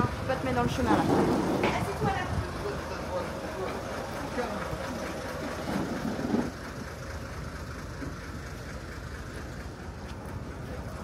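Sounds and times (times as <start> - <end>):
engine running at low revs: 0.0 - 11.0.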